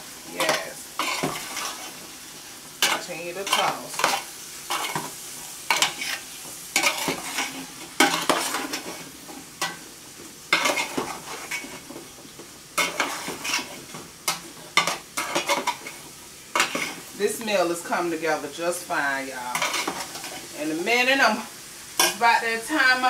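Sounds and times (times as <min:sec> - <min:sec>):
food sizzling: 0:00.0 - 0:23.0
metal tongs scraping a pot: 0:02.8 - 0:05.1, 0:06.8 - 0:09.0, 0:10.5 - 0:11.8, 0:12.8 - 0:16.0, 0:19.5 - 0:20.5.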